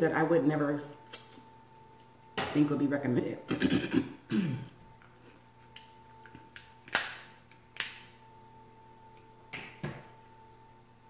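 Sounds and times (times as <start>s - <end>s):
crab shells cracking: 6.5s - 8.1s.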